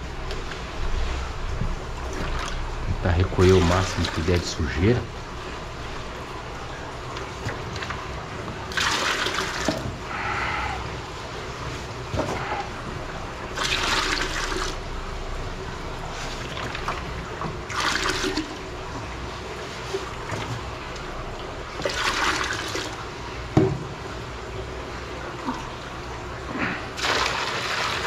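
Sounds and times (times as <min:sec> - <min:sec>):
trickle of running water: 0:00.0 - 0:28.0
water splashing as poured: 0:08.7 - 0:09.8, 0:13.5 - 0:14.8, 0:16.2 - 0:18.7, 0:27.0 - 0:28.0.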